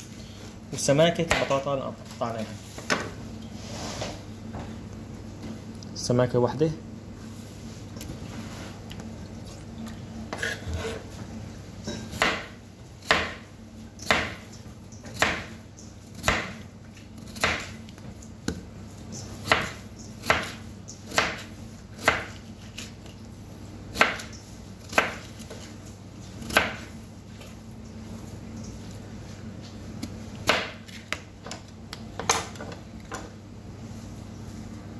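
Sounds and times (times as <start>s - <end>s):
steady low hum: 0.0s - 34.9s
knife slicing potatoes: 19.2s - 23.0s.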